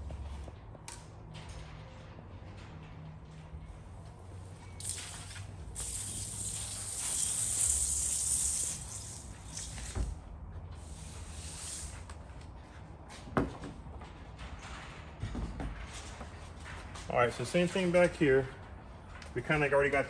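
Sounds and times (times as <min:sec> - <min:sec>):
spray bottle hissing: 0:04.8 - 0:10.0, 0:10.9 - 0:12.0.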